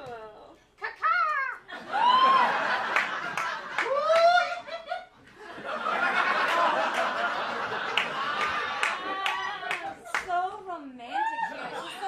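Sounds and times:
audience laughing: 1.7s - 10.3s.

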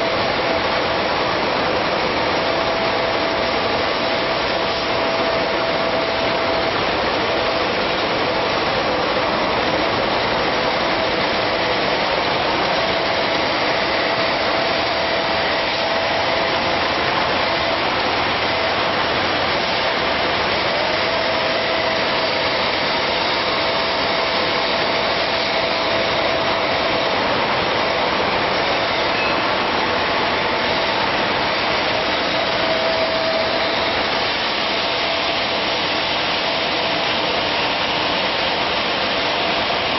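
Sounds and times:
production line machine noise: 0.0s - 39.9s
faint machine tone: 28.8s - 29.7s.

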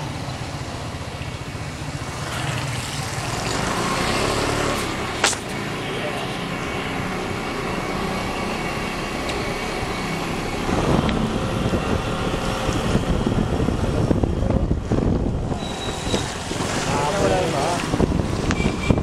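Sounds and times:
wind buffeting microphone: 9.8s - 19.0s.

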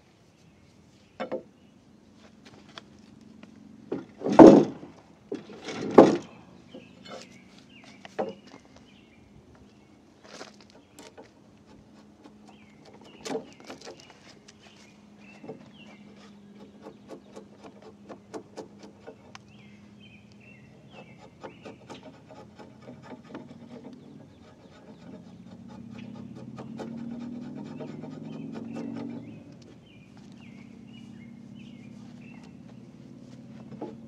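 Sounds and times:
birds chirping: 5.4s - 34.0s
chisel scraping wood: 10.6s - 14.3s, 15.4s - 19.6s, 20.8s - 30.0s, 33.4s - 34.0s.

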